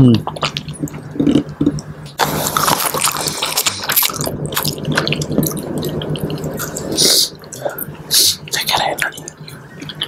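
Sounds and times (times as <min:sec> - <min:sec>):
wet chewing and sucking: 0:00.2 - 0:07.6.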